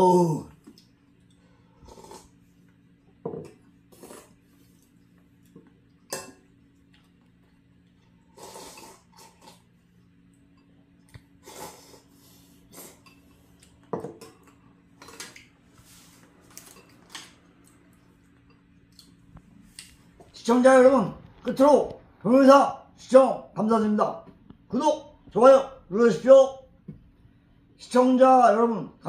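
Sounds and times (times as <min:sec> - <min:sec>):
faint steady hum: 0:00.0 - 0:29.0
slurping noodles: 0:01.7 - 0:02.7, 0:03.8 - 0:05.1, 0:08.1 - 0:09.8, 0:11.4 - 0:13.6.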